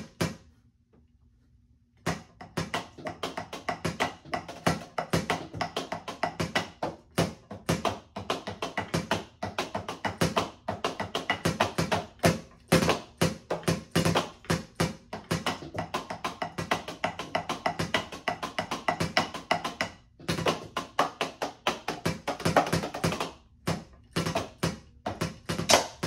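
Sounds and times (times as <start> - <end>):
drumsticks tapping electronic drum pads: 2.0 - 26.0.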